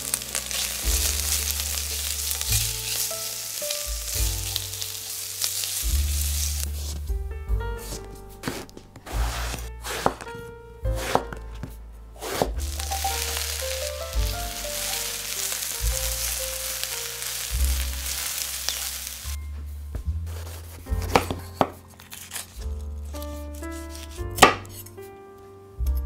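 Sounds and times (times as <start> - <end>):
vegetables sizzling in oil: 0.0 - 6.9, 12.6 - 19.4
knife chopping on wooden board: 7.8 - 10.3, 11.0 - 11.4, 12.2 - 12.6, 20.3 - 21.8.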